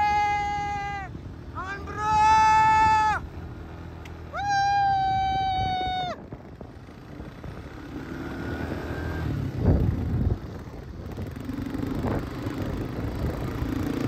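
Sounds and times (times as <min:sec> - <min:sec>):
quad bike engine running: 0:00.0 - 0:14.0.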